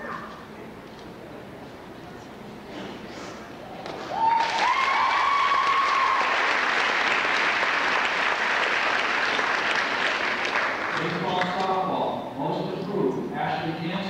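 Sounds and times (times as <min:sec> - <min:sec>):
audience applause: 0:04.1 - 0:11.4.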